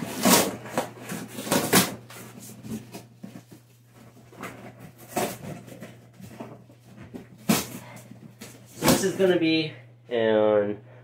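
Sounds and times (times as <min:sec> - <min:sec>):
cardboard tearing: 0:00.0 - 0:03.2, 0:04.3 - 0:06.0.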